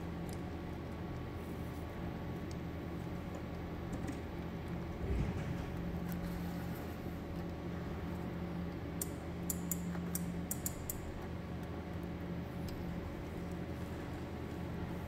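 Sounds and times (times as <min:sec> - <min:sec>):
machine humming: 0:04.4 - 0:08.5.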